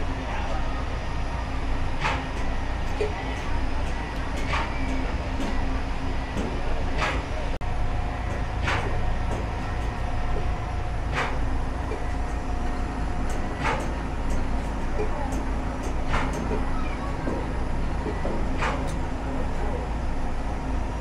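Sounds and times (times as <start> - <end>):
machine rumbling: 0.0 - 21.0
sharp knocks: 8.6 - 10.5.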